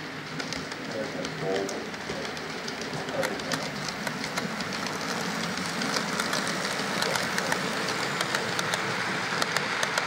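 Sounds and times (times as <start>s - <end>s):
model train running: 0.0s - 10.0s
wheels clicking over rail joints: 0.0s - 10.0s.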